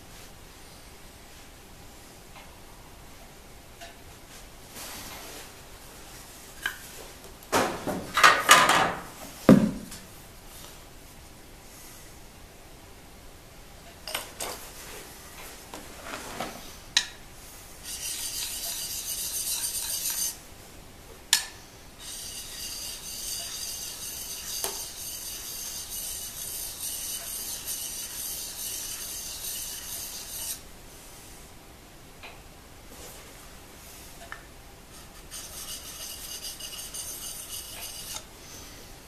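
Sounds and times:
chisel scraping on sharpening stone: 0:17.8 - 0:20.4, 0:22.0 - 0:30.6, 0:35.1 - 0:38.3.

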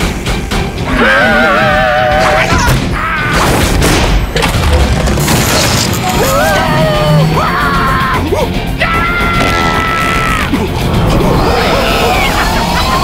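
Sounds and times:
cartoon creatures screaming: 0:00.9 - 0:03.5, 0:06.0 - 0:10.6, 0:11.2 - 0:13.0.

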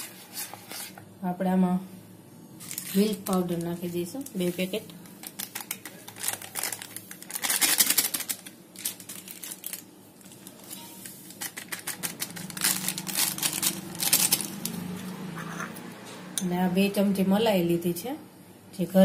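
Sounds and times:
plastic sachets crinkling: 0:02.6 - 0:15.0.

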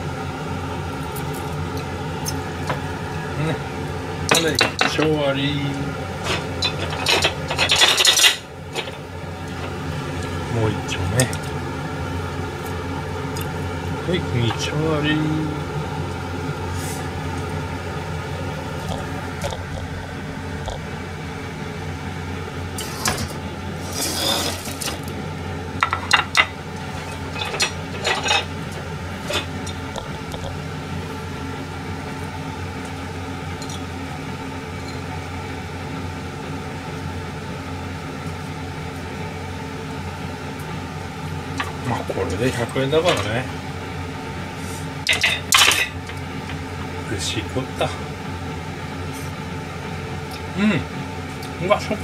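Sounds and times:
steady mechanical hum: 0:00.0 - 0:52.0
plates and chopsticks clinking: 0:04.3 - 0:05.1, 0:06.2 - 0:09.0, 0:25.8 - 0:28.5, 0:45.1 - 0:46.0.

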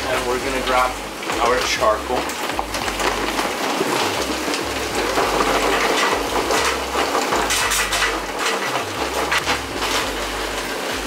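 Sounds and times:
charcoal clattering against metal: 0:00.0 - 0:11.0
paper bag rustling: 0:00.0 - 0:11.0.

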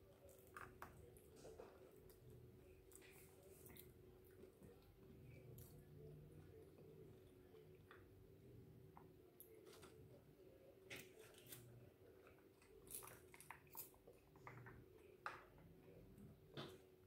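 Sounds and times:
faint steady hum: 0:00.0 - 0:17.0
chewing fried food: 0:11.6 - 0:15.1.

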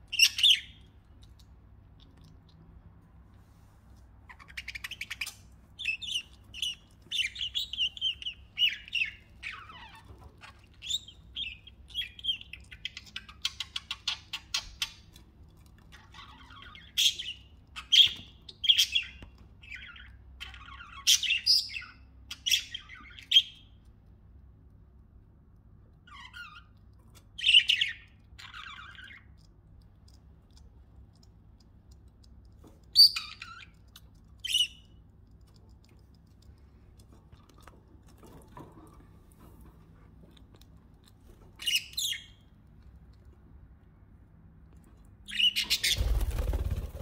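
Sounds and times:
budgerigars chirping: 0:00.1 - 0:00.8, 0:45.3 - 0:46.2.

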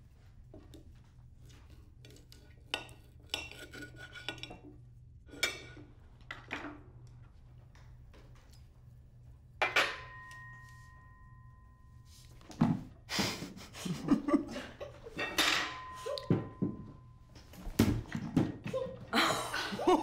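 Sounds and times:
tableware clattering: 0:09.6 - 0:10.7, 0:15.0 - 0:17.1
drinking glass ringing: 0:15.5 - 0:17.2.

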